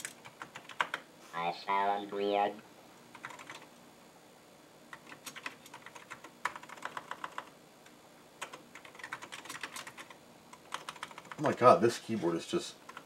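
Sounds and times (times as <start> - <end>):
mechanical keyboard typing: 0.0 - 1.0, 3.1 - 3.7, 4.9 - 7.5, 8.4 - 11.6.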